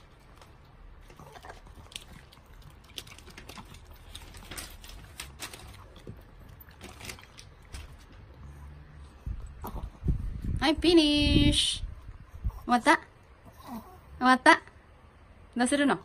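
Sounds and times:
dog crunching kibble: 0.0 - 8.6.

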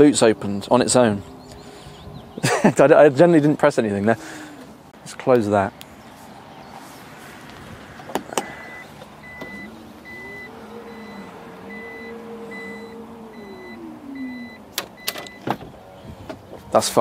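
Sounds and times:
warning beeps: 8.6 - 15.5
electric motor whine: 9.2 - 14.8
tailgate shutting thump: 14.7 - 16.5.

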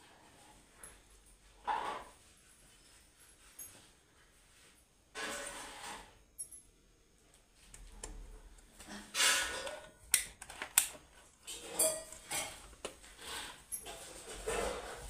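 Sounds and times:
handling rustling and knocks: 8.7 - 15.0.

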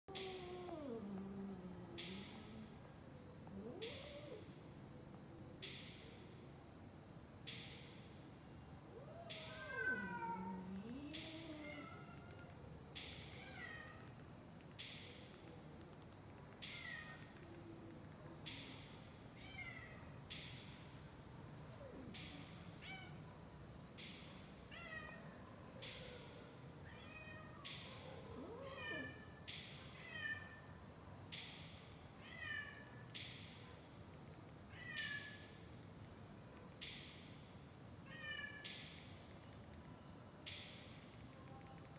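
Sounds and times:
cat meowing: 0.1 - 2.5, 9.0 - 12.5
crickets trilling: 0.1 - 41.9.

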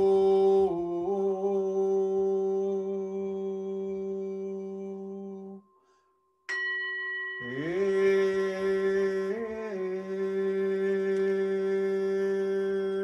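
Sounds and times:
man humming: 0.0 - 5.6, 7.4 - 13.0
singing bowl ringing: 5.4 - 9.4.

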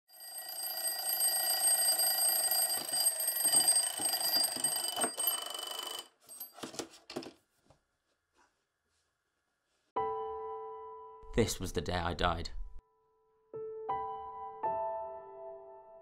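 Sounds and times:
alarm clock bell ringing: 0.1 - 6.6
clock clattering over: 0.4 - 6.8.

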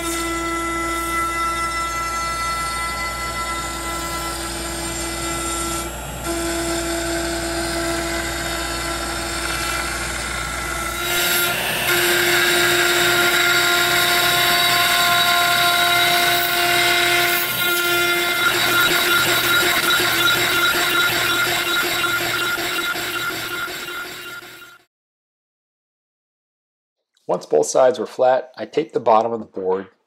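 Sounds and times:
bit cutting wood: 0.0 - 24.8
router spindle whine: 0.0 - 24.8.

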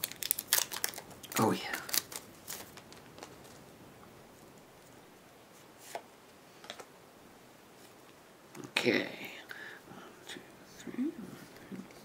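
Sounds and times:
soft card rustles: 0.0 - 3.7.

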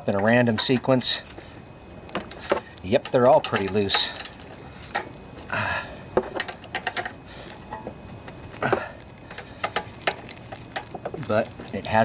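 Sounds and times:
metal clinks: 2.2 - 5.1
ratchet wrench clicking: 2.5 - 5.1, 9.3 - 11.0.

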